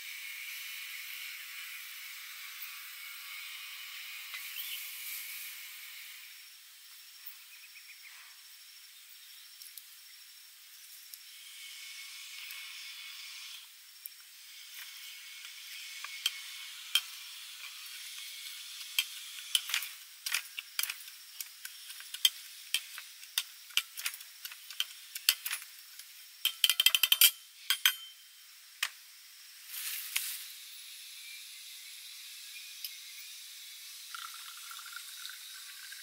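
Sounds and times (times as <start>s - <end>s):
muddler grinding in metal shaker: 14.4s - 28.1s.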